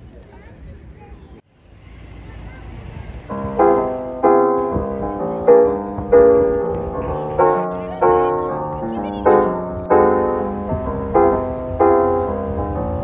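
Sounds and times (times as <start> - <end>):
piano playing chords: 3.3 - 13.0.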